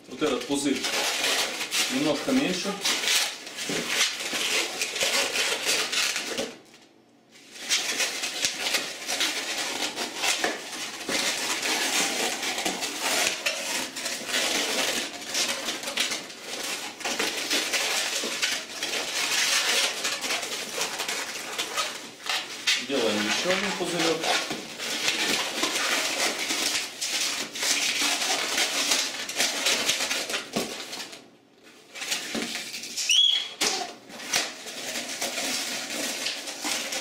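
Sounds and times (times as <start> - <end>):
balloon squeaking under fingers: 33.0 - 34.0.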